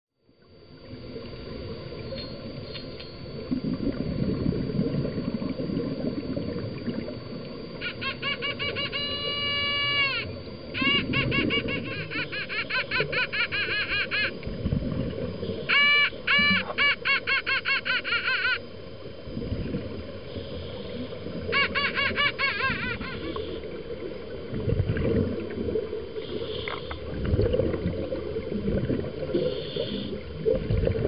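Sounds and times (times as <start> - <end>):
rushing water and scuba bubbles: 0.3 - 31.0
dolphins whistling and chirping: 7.8 - 14.4, 15.4 - 18.7, 20.4 - 23.8, 29.4 - 30.2.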